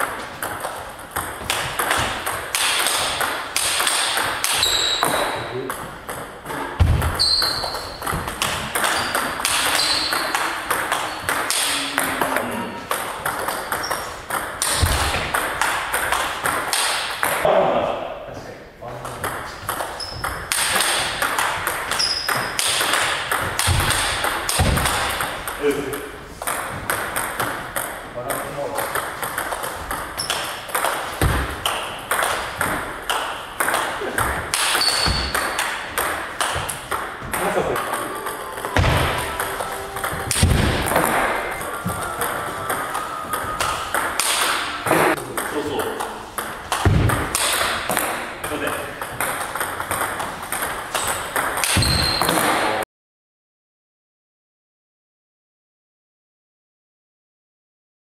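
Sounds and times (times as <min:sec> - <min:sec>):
ping pong ball clicking: 0:00.4 - 0:06.3, 0:07.4 - 0:17.4, 0:28.8 - 0:48.0, 0:48.8 - 0:51.9
sneakers squeaking on wooden floor: 0:04.4 - 0:15.4, 0:19.4 - 0:20.5, 0:21.6 - 0:22.7, 0:28.9 - 0:45.2, 0:51.7 - 0:52.5
short high squeak: 0:04.6 - 0:05.2, 0:07.2 - 0:08.0, 0:09.0 - 0:10.3, 0:34.8 - 0:35.4.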